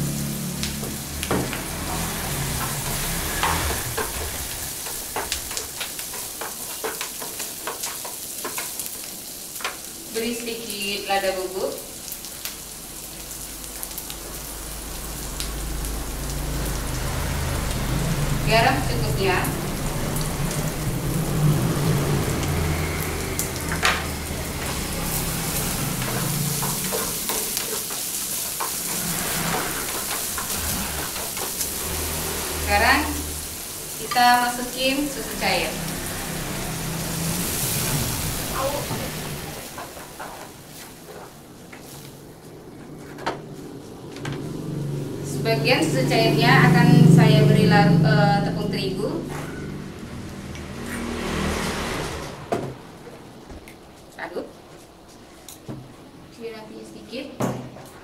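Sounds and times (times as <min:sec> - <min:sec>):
food sizzling in a frying pan: 0:00.0 - 0:42.3.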